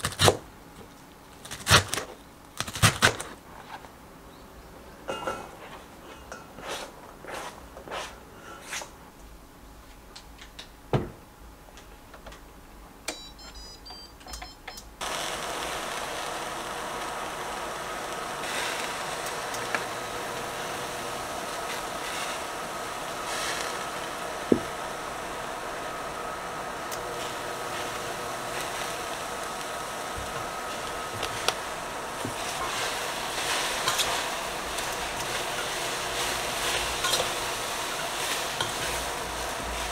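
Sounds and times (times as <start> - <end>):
cooktop fan hum and whine: 0.0 - 39.9
pots and utensils knocking: 5.1 - 5.6
cooktop control beeps: 13.1 - 14.9.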